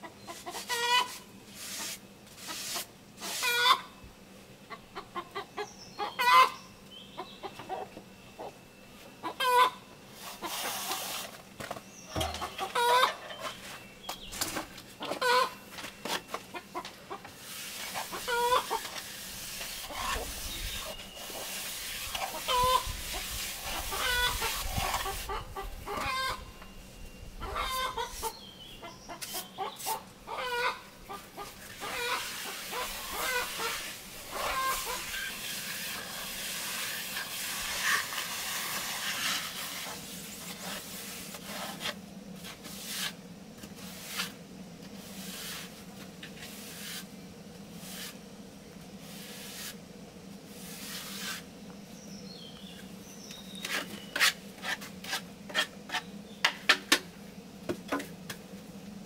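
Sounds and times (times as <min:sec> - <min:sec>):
chickens clucking: 0:00.0 - 0:01.2, 0:03.2 - 0:03.9, 0:04.7 - 0:08.6, 0:09.2 - 0:11.0, 0:12.1 - 0:13.6, 0:14.5 - 0:19.1, 0:22.1 - 0:26.6, 0:27.4 - 0:35.3
trowel scraping mortar on wall: 0:00.4 - 0:03.7, 0:10.2 - 0:11.4, 0:17.4 - 0:25.2, 0:31.4 - 0:43.2, 0:43.8 - 0:44.4, 0:45.0 - 0:47.1, 0:47.8 - 0:48.2, 0:49.1 - 0:49.8, 0:50.6 - 0:51.5, 0:53.5 - 0:56.1.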